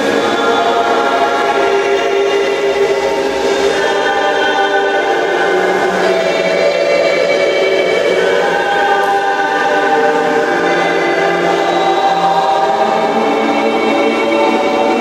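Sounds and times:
choir holding long notes: 0.0 - 15.0.

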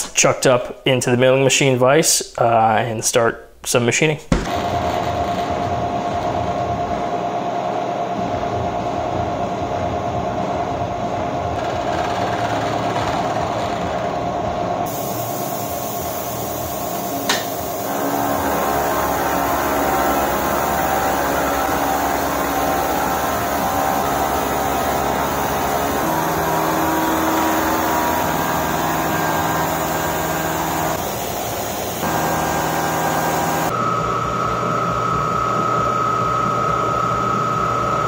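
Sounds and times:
coolant spray hiss: 14.9 - 33.7
milling machine cutting metal: 17.3 - 31.0, 31.8 - 33.7.

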